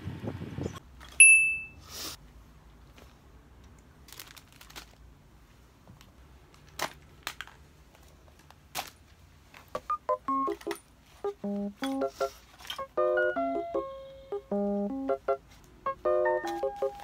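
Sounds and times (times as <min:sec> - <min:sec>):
soft rustles: 0:02.0 - 0:03.4.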